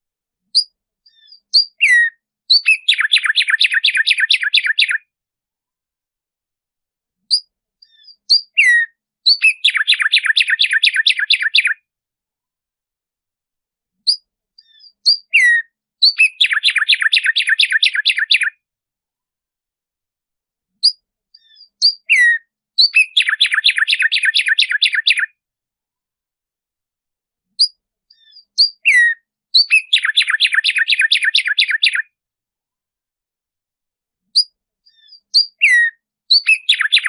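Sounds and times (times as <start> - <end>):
sparrow singing: 0.5 - 5.1, 7.2 - 11.8, 14.0 - 18.6, 20.7 - 25.4, 27.6 - 32.1, 34.3 - 37.0.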